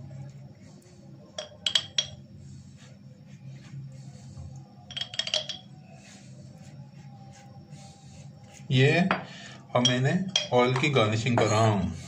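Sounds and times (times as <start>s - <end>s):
brush clinking against glass jar: 1.3s - 2.3s, 4.8s - 6.7s, 8.4s - 11.7s.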